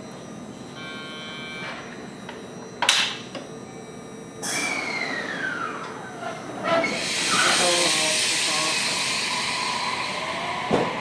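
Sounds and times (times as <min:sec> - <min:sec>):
brief electronic tone: 0:00.0 - 0:07.5
air brakes hissing: 0:06.8 - 0:11.0.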